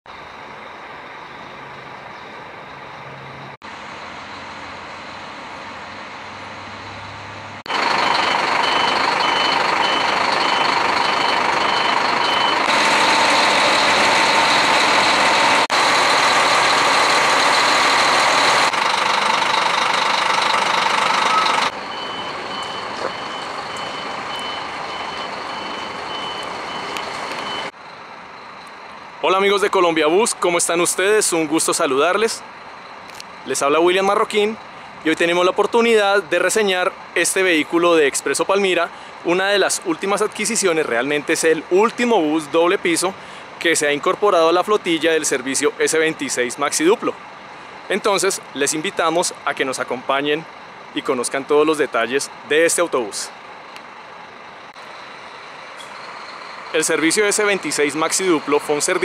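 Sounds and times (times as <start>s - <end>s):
bus engine hum: 0.1s - 29.3s, 52.3s - 59.0s
fast electronic warning beep: 7.7s - 12.7s, 19.3s - 27.7s.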